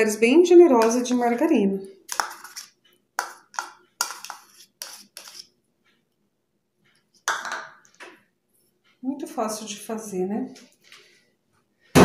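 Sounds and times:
spoon tapping plastic jar: 0.8s - 1.5s, 2.1s - 5.5s
spoon scraping jar rim: 2.1s - 5.5s.

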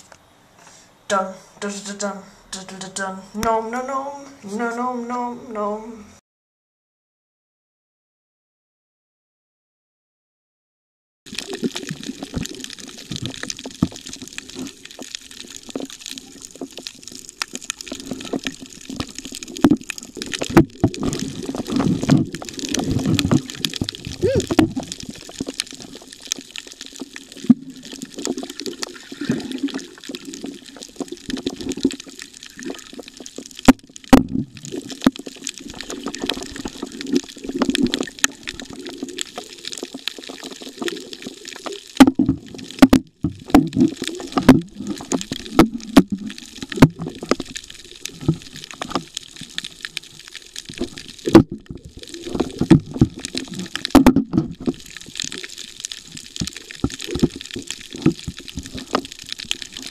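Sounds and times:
muffled water sloshing underwater: 11.3s - 59.9s
sharp clicks and knocks: 52.4s - 54.8s.

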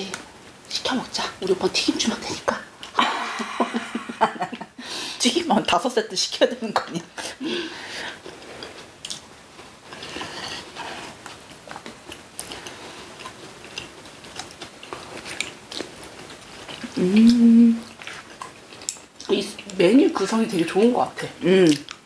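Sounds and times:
close chewing and eating: 0.0s - 3.0s, 6.5s - 22.0s
person humming: 16.8s - 17.9s.

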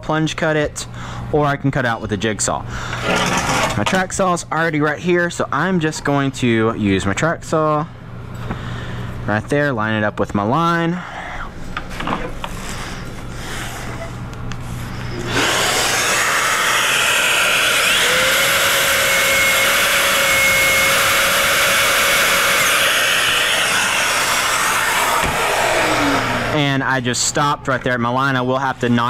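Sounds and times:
track saw cutting plywood: 3.0s - 3.8s, 15.2s - 26.6s
dust extraction through hose: 15.2s - 26.6s.

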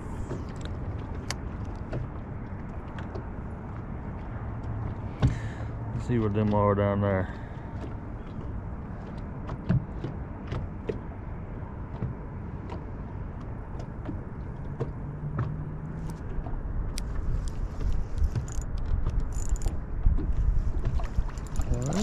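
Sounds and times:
rippling water: 0.0s - 22.0s
light clicks and ticks: 16.9s - 19.8s.

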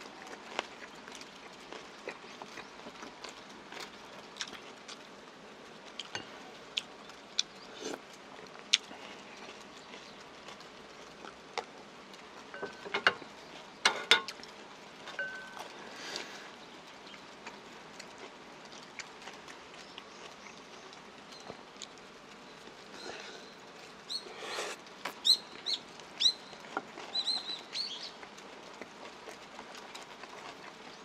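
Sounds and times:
chewing and mouth sounds: 0.0s - 5.1s, 5.9s - 16.3s.

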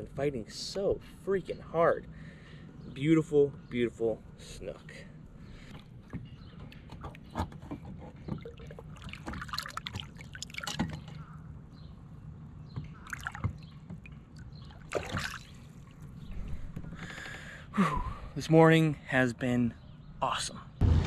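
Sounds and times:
water splashing and trickling: 5.6s - 11.3s, 12.8s - 16.7s.

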